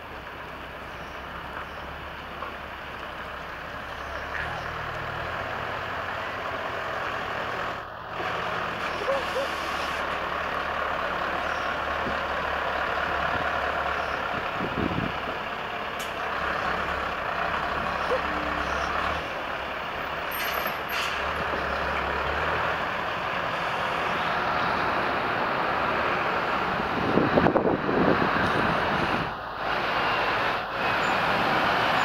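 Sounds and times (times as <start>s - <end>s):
truck diesel engine running: 0.0s - 32.0s
air brake hisses: 20.3s - 21.3s.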